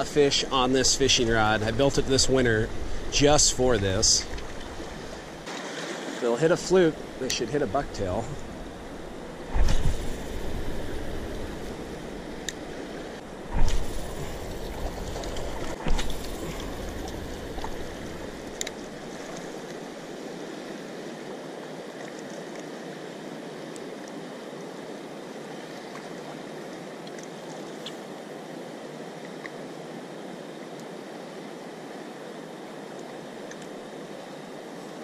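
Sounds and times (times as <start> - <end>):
water rushing: 0.0 - 35.0
wind buffeting microphone: 6.9 - 19.5.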